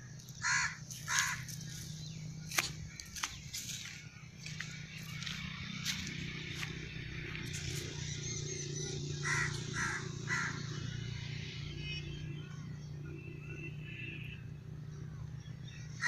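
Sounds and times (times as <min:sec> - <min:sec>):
steady low hum: 0:00.0 - 0:16.0
crow cawing: 0:00.4 - 0:01.7, 0:09.1 - 0:10.9.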